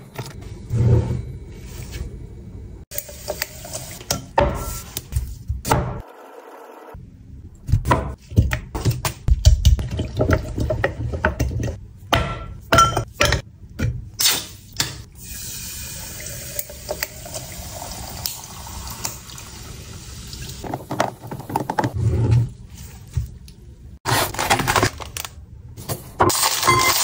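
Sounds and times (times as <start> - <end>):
tap water running: 15.2 - 21.9.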